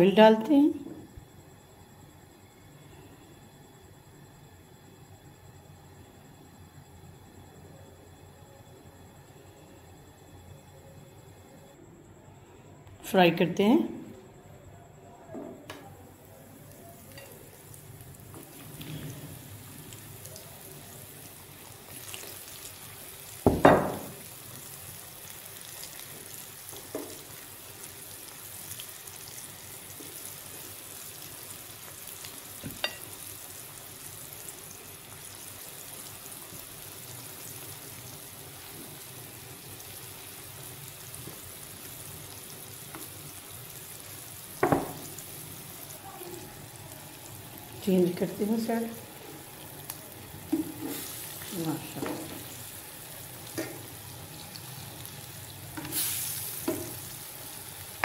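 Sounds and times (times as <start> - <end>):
meat sizzling in oil: 16.6 - 58.0.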